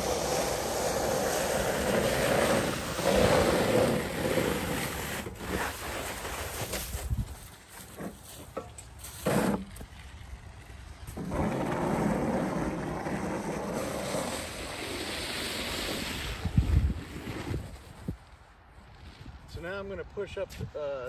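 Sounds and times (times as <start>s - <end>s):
snow pusher scraping snow: 0.0s - 9.8s, 11.1s - 18.1s.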